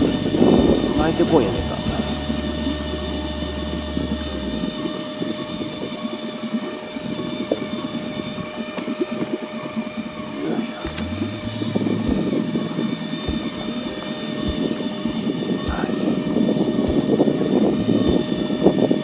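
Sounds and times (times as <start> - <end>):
low rumble: 0.0 - 6.0, 10.8 - 16.1
faint steady hum: 0.0 - 19.0.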